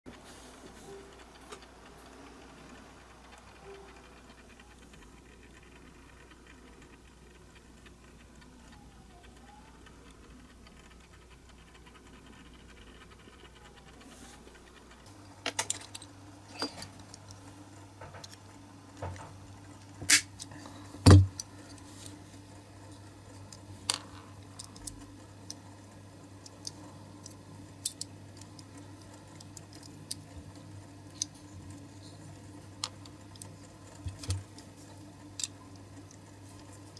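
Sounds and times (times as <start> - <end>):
metal parts clicking and tapping: 14.4 - 17.4, 26.4 - 32.1, 32.8 - 36.9.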